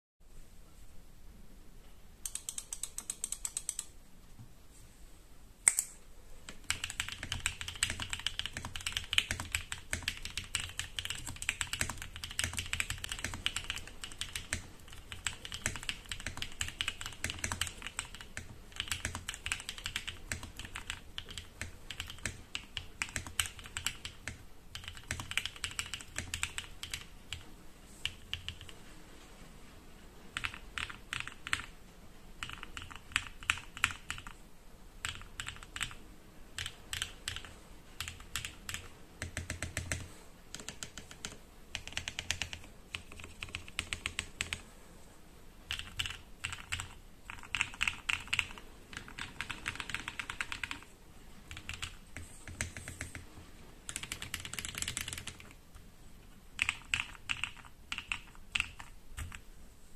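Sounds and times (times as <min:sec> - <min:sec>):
typing on mechanical keyboard: 0:02.2 - 0:03.9, 0:06.5 - 0:28.8, 0:30.4 - 0:31.7, 0:32.4 - 0:34.4, 0:35.0 - 0:44.6, 0:45.7 - 0:50.9, 0:51.5 - 0:53.2, 0:53.9 - 0:55.6, 0:56.6 - 0:59.4.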